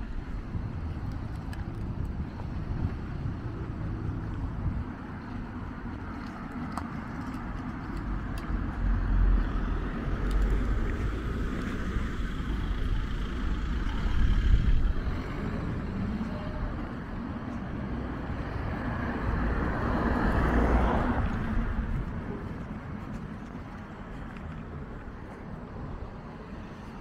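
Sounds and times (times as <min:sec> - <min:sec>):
car driving past: 0:18.8 - 0:21.8.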